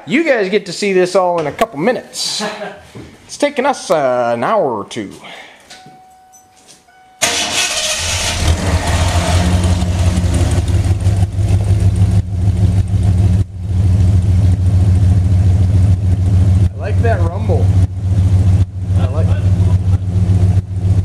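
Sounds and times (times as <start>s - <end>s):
car engine starting and idling: 6.9s - 21.0s.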